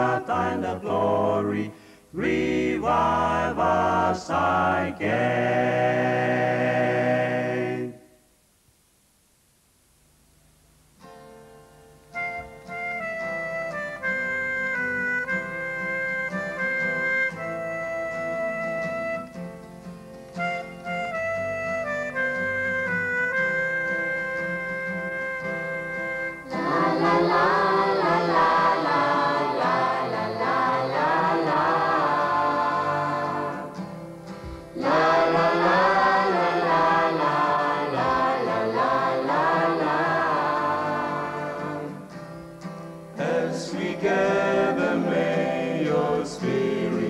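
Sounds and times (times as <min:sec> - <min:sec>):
gospel choir singing: 0:00.0 - 0:08.2, 0:26.4 - 0:42.3, 0:43.2 - 0:47.0
held instrumental notes: 0:11.6 - 0:47.0.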